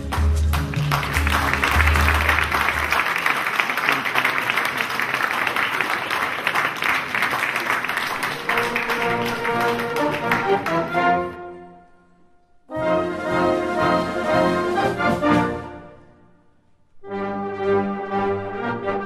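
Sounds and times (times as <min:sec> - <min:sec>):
background music: 0:00.0 - 0:03.0, 0:08.3 - 0:19.0
audience applauding: 0:00.0 - 0:11.3
orchestral piece with strings: 0:08.1 - 0:19.0.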